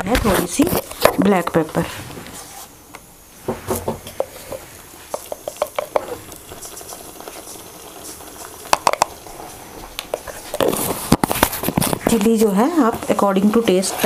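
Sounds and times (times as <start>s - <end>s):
gravy simmering and sizzling: 0.4s - 14.0s
bubbling pops: 5.2s - 12.2s.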